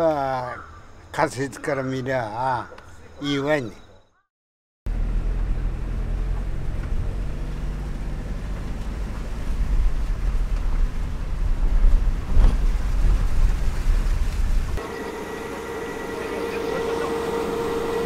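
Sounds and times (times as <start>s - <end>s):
engine and tyre rumble: 4.9s - 18.0s.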